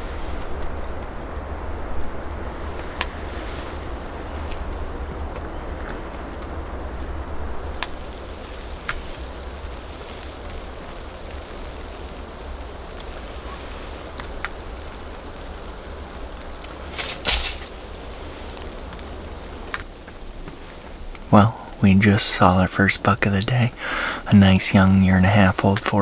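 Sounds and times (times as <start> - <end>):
hiss of falling wet snow: 0.0 - 26.0
low wind rumble: 0.0 - 26.0
faint ticks: 7.7 - 21.8
short rustling: 15.5 - 21.2.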